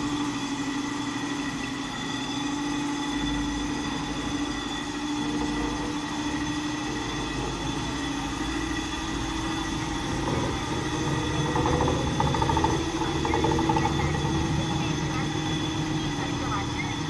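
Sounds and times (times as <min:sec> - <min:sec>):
mechanical hum with high whining: 0:00.0 - 0:17.0
rapid mechanical pulsing: 0:00.0 - 0:17.0.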